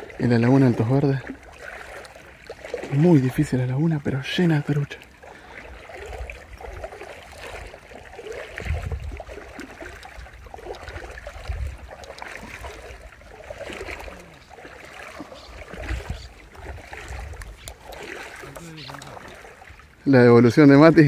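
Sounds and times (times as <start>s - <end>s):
water sloshing around wading person: 0.0s - 21.0s
low rumbles on microphone: 8.5s - 9.3s.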